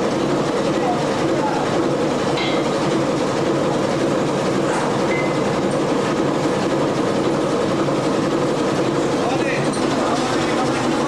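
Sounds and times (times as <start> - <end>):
boat engine rumbling: 0.0 - 11.0
deck machinery running: 0.0 - 11.0.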